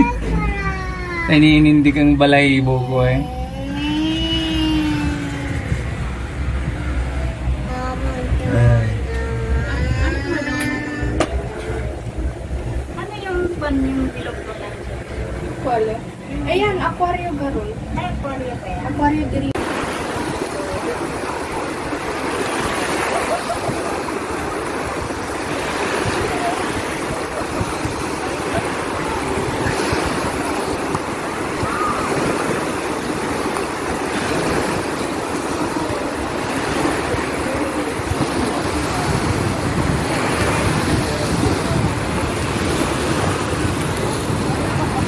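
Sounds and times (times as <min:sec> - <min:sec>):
faint voices of bathers: 0:03.0 - 0:19.4, 0:20.2 - 0:45.0
small waves breaking on shore: 0:19.4 - 0:45.0.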